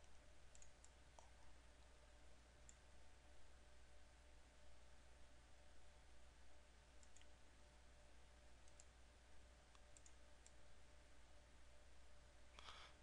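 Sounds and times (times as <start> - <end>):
computer mouse clicks: 0.0 - 1.4, 7.0 - 7.4, 8.6 - 9.0, 9.7 - 10.6.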